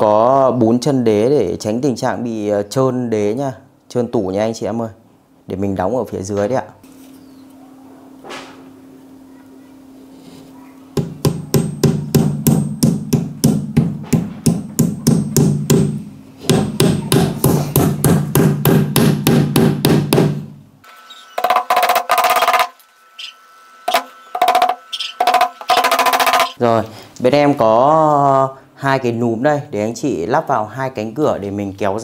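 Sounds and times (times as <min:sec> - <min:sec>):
hammer tapping: 0:11.0 - 0:20.4, 0:21.4 - 0:22.8, 0:23.9 - 0:26.6.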